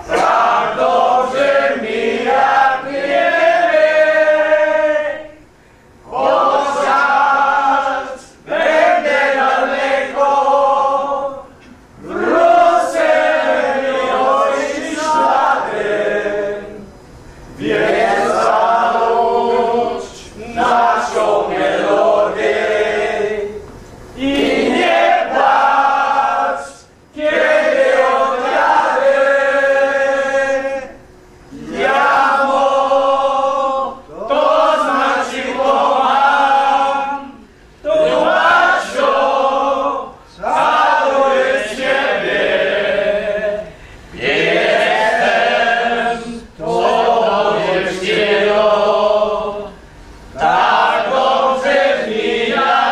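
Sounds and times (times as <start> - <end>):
men singing in unison: 17.6 - 23.6, 31.5 - 52.9.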